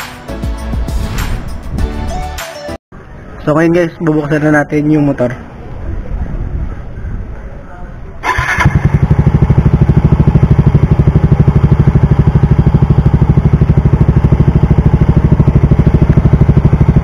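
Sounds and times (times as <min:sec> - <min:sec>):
scooter engine starting and idling: 0:08.2 - 0:17.0.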